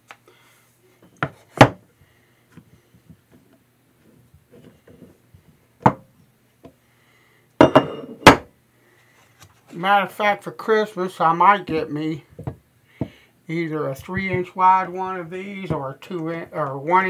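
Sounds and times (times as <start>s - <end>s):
stones knocking on countertop: 7.6s - 8.5s.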